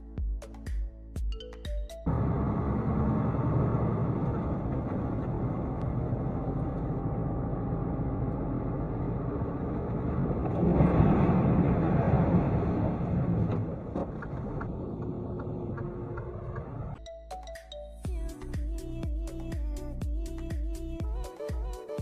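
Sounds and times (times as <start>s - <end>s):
vehicle road and engine noise: 2.0s - 17.0s.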